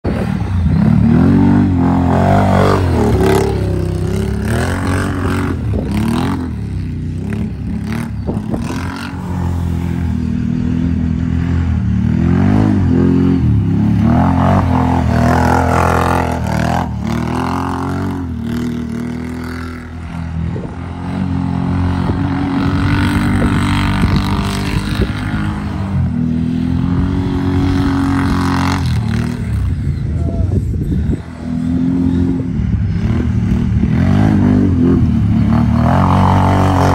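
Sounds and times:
atv engine revving: 0.0s - 36.9s.

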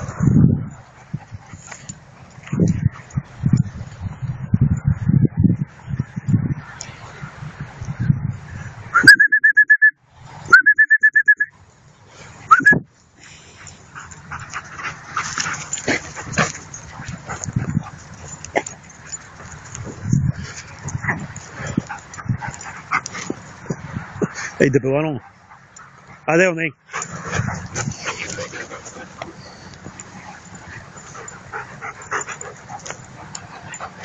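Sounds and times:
dogs play-growling: 13.6s - 24.5s, 26.9s - 34.0s.

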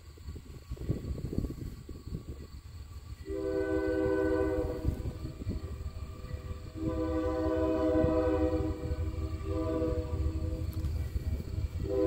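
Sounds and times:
train rumble: 0.0s - 12.0s
train chime horn blasts: 3.2s - 10.8s.

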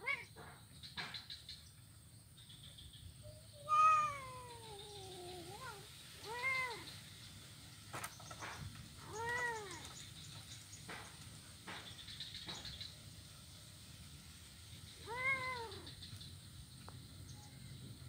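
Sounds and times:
kittens meowing: 0.0s - 0.5s, 3.5s - 6.9s, 9.0s - 9.9s, 15.0s - 15.9s.

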